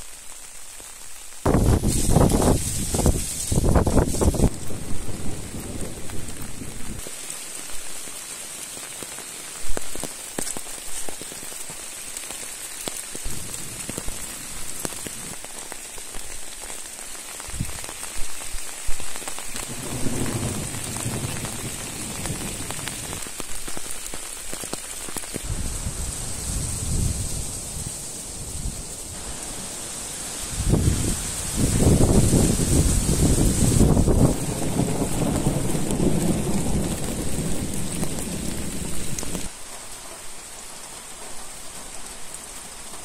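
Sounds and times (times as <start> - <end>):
raindrops tapping: 0.0 - 25.9, 30.7 - 40.3
steady rain falling: 0.0 - 43.0.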